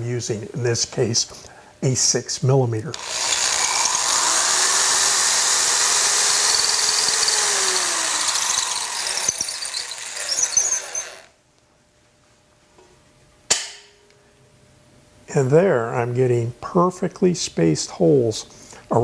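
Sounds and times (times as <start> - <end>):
electric drill boring into wood: 2.9 - 11.3
sharp click: 13.5 - 13.9.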